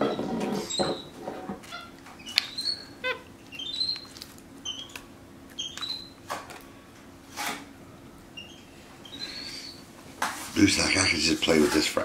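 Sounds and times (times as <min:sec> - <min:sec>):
monkey peeping: 0:01.7 - 0:06.2, 0:08.4 - 0:09.8.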